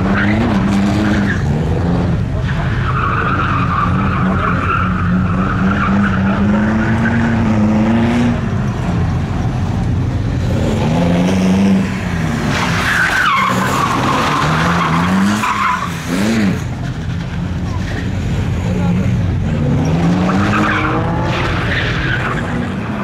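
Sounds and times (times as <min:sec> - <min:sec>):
car engine revving: 0:00.0 - 0:23.0
tyres squealing: 0:12.4 - 0:18.2.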